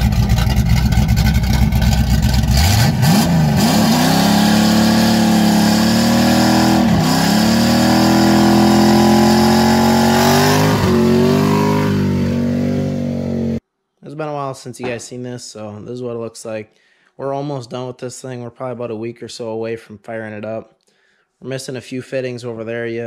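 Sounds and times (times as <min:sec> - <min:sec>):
tire spinning: 0:00.0 - 0:13.6
car engine revving hard: 0:01.0 - 0:13.6.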